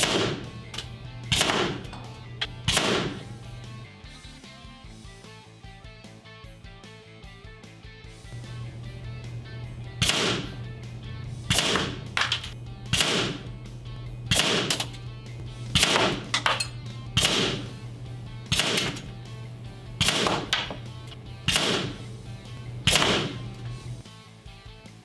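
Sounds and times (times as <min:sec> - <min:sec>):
air pistol shots: 0:00.0 - 0:03.5, 0:10.0 - 0:10.7, 0:11.5 - 0:13.5, 0:14.2 - 0:15.0, 0:15.7 - 0:17.8, 0:18.4 - 0:19.1, 0:20.0 - 0:22.1, 0:22.8 - 0:23.6
steady low hum: 0:00.0 - 0:03.9, 0:08.2 - 0:24.0
background music: 0:00.0 - 0:25.0.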